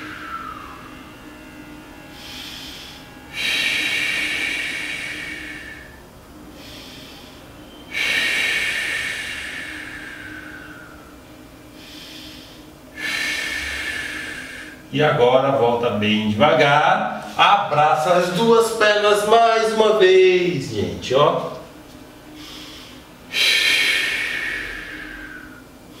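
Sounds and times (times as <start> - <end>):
man inhaling quietly: 0.0 - 14.9, 21.6 - 26.0.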